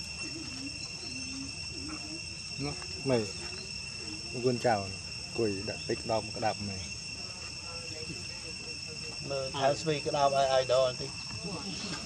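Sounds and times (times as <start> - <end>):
high-pitched insect drone: 0.0 - 12.0.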